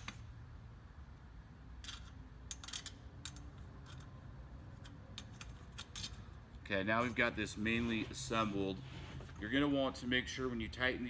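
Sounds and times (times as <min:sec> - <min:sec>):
small metal hardware clicking: 0:01.8 - 0:04.2, 0:04.8 - 0:06.3.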